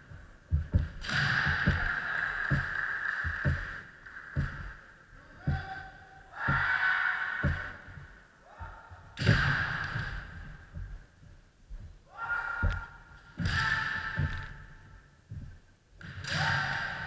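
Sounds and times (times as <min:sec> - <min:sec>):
feet stamping on wooden floor: 0:00.0 - 0:04.8, 0:06.4 - 0:06.8, 0:07.4 - 0:12.0, 0:12.6 - 0:15.7
people shouting: 0:01.0 - 0:03.8, 0:05.2 - 0:10.4, 0:12.1 - 0:14.7, 0:16.2 - 0:17.0.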